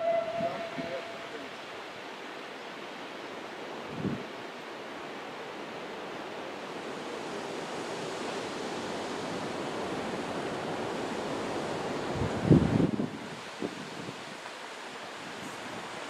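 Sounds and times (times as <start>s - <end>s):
steam locomotive hissing steam: 0.0s - 1.8s, 14.9s - 16.0s.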